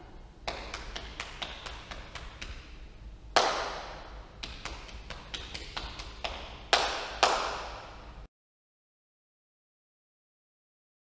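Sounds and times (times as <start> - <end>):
loud slap: 3.4 - 8.0.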